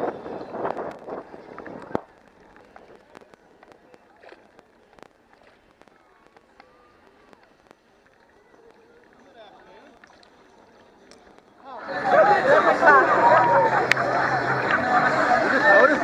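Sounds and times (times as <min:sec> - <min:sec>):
wind buffeting microphone: 0:00.0 - 0:03.5
paddle splashes: 0:00.0 - 0:11.4
water lapping against kayak: 0:00.0 - 0:11.5.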